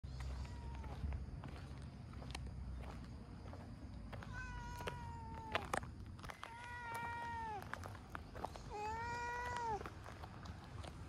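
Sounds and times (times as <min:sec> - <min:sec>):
cat meowing: 0:04.2 - 0:05.7.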